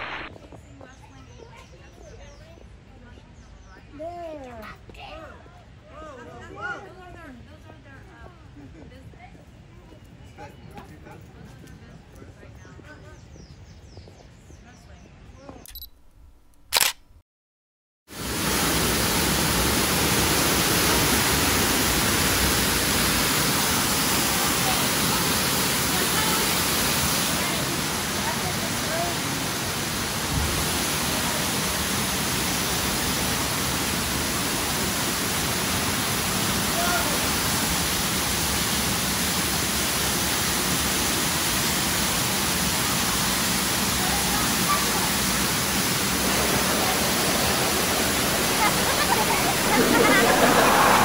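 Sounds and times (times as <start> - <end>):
sharp click: 15.6 - 17.2
waterfall splashing into pool: 18.1 - 51.0.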